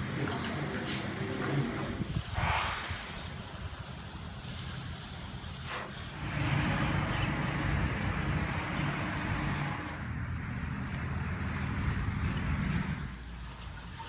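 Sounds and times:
hose spraying water: 0:00.0 - 0:14.0
rushing water: 0:06.2 - 0:14.0.

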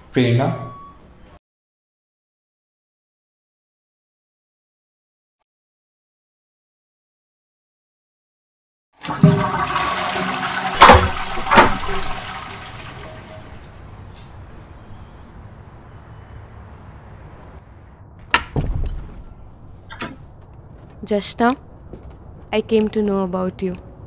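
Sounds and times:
toilet flushing: 0:09.0 - 0:13.7.

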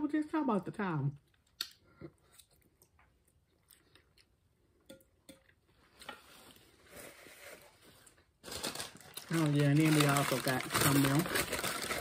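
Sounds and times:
chewing noodles: 0:01.4 - 0:04.6.

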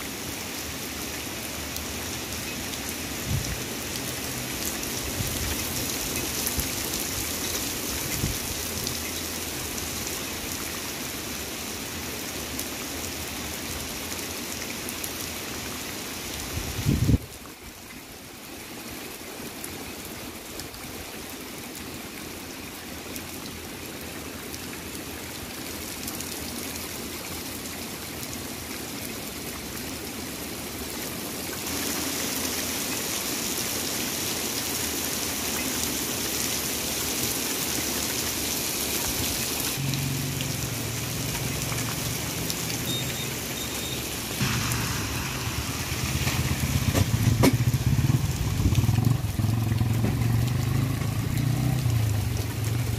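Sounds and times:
heavy rain on pavement: 0:00.0 - 0:52.9
motorcycle engine running: 0:44.4 - 0:52.9.

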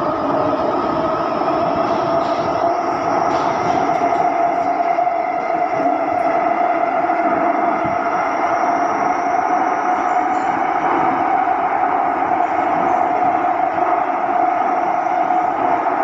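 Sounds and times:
wheel and tunnel rumble: 0:00.0 - 0:16.0.

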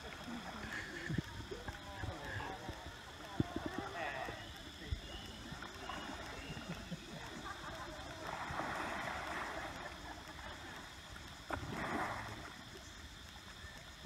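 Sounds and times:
elephant splashing in water: 0:05.1 - 0:10.0, 0:11.4 - 0:12.6.

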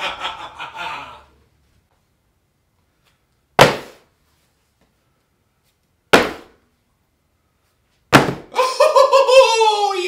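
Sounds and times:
boxes landing on wooden desk: 0:08.1 - 0:08.5.

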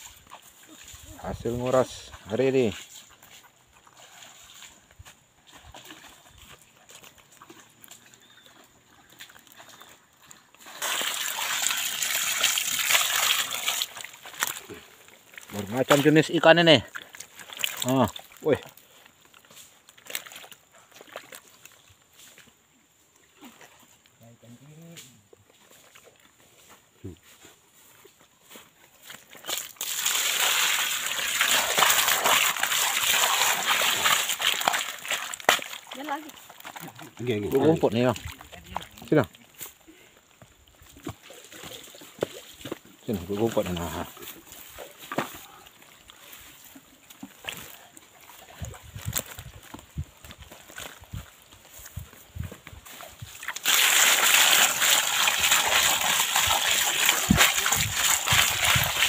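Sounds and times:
water poured from bucket splashing: 0:10.6 - 0:18.8, 0:20.0 - 0:21.7, 0:29.4 - 0:39.4, 0:53.0 - 0:59.0.

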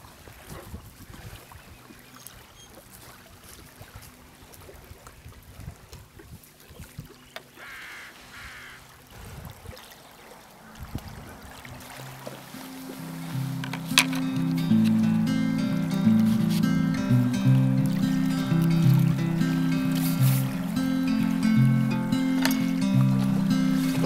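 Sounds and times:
small waves lapping: 0:00.0 - 0:24.0
wind rumbling on microphone: 0:00.1 - 0:01.8, 0:04.8 - 0:07.2, 0:09.1 - 0:15.4
bird calling: 0:07.2 - 0:08.9, 0:10.5 - 0:24.0.

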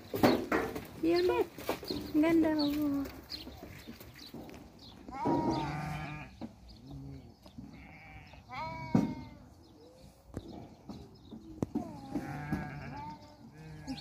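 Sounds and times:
sheep and goats bleating: 0:05.0 - 0:09.6, 0:11.8 - 0:14.0.

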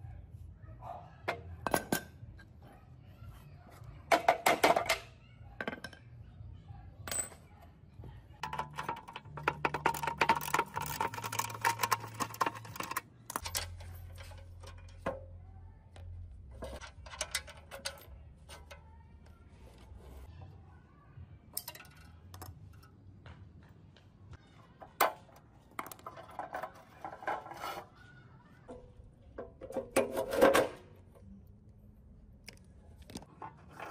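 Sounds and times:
metal clinking and scraping: 0:08.4 - 0:15.4, 0:16.5 - 0:20.3, 0:21.6 - 0:22.9.

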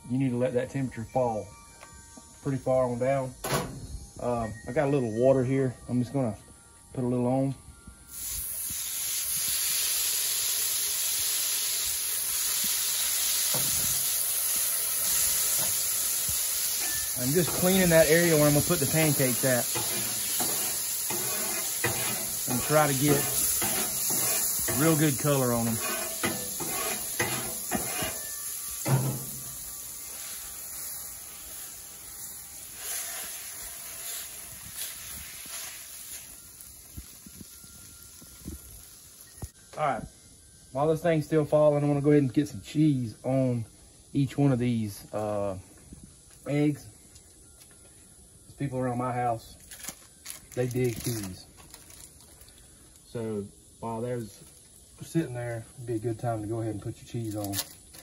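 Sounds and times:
water sizzling on hot griddle: 0:08.1 - 0:39.6, 0:49.8 - 0:52.5, 0:53.4 - 0:55.1
paper towel scrubbing griddle: 0:17.2 - 0:28.2.

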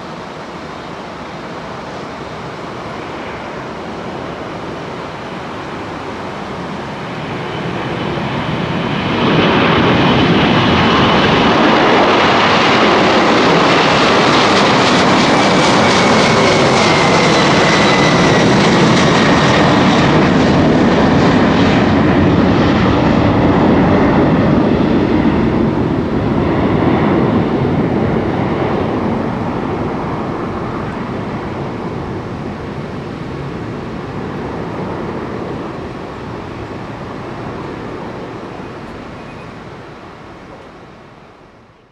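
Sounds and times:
jet engines at takeoff: 0:00.0 - 0:41.9.

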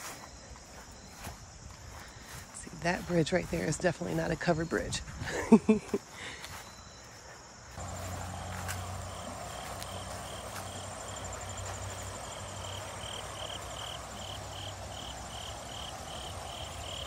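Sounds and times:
insect chirping: 0:00.0 - 0:03.6, 0:05.0 - 0:17.0
creek trickling over rocks: 0:07.8 - 0:17.0.

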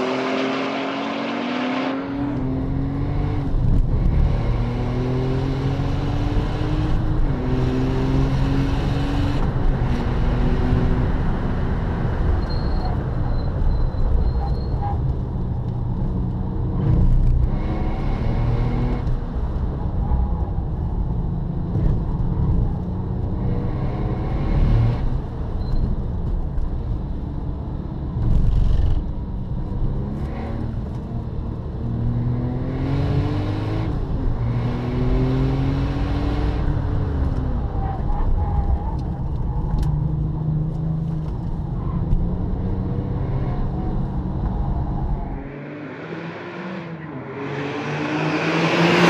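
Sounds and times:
car engine revving and shifting gears: 0:00.0 - 0:13.7, 0:14.4 - 0:49.0.

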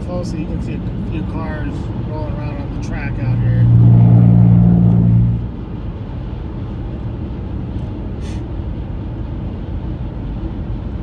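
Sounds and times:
car cabin road rumble: 0:00.0 - 0:11.0
brief hiss: 0:08.2 - 0:08.5.

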